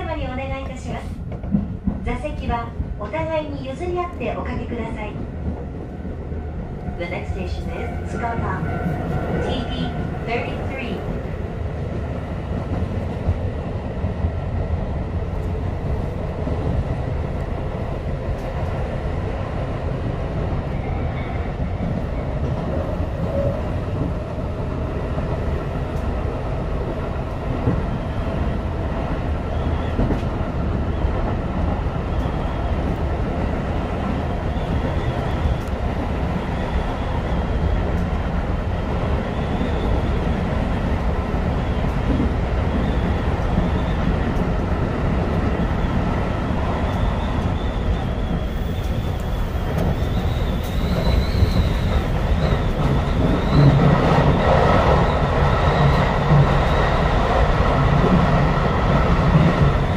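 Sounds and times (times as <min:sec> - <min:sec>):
train wheels on rails: 0:00.0 - 0:59.9.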